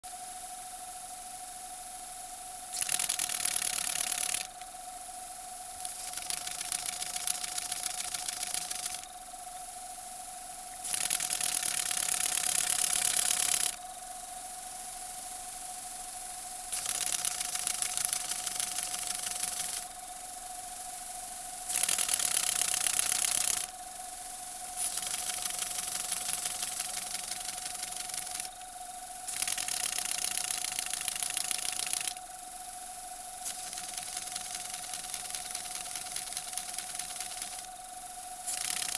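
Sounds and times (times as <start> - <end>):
steady hum: 0.0 - 38.9
model steam engine exhaust patter: 0.1 - 38.9.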